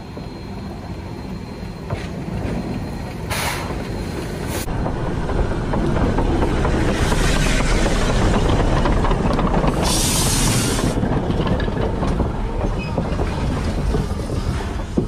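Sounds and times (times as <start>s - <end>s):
rumble of train wheels: 0.0s - 15.0s
steam hissing: 9.7s - 11.0s.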